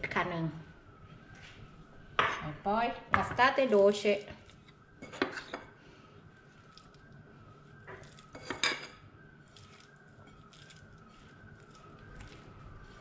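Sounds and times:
bowls and utensils clinking: 7.9s - 9.0s.

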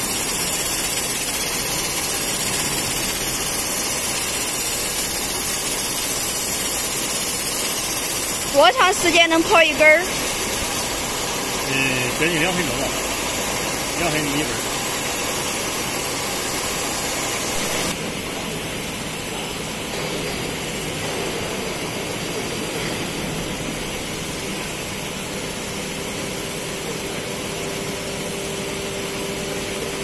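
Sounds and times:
grinding machine hissing: 0.0s - 18.0s
machinery hum: 0.0s - 24.8s.

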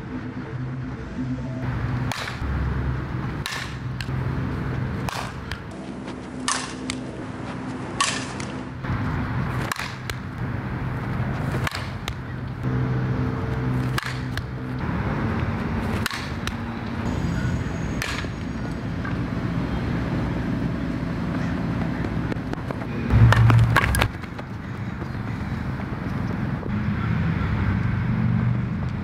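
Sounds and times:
steady low hum: 0.0s - 29.0s
bat cracking against softball: 2.0s - 2.5s, 3.4s - 4.2s, 5.0s - 8.8s, 9.4s - 12.7s, 13.4s - 14.8s, 15.8s - 16.6s, 17.9s - 18.4s.

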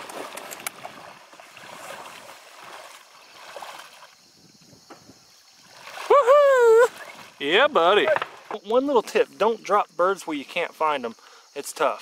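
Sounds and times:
water sloshing around waders: 0.0s - 9.4s.

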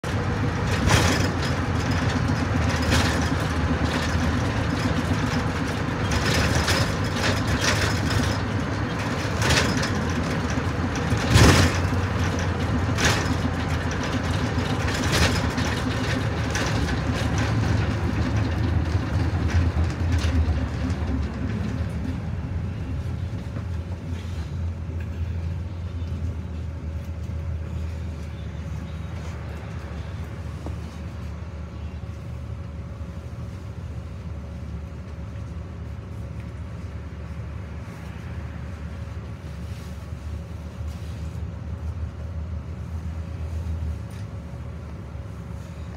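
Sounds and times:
knocks and clanks: 0.0s - 22.4s
low vehicle rumble: 0.0s - 45.9s.

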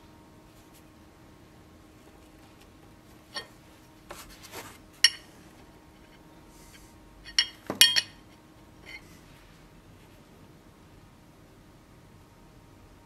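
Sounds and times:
steel parts clinking: 3.3s - 3.6s, 5.0s - 5.3s, 7.2s - 9.0s.

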